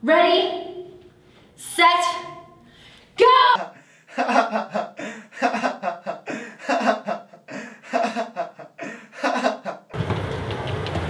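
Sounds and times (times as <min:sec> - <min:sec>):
young man laughing: 0:03.6 - 0:10.0.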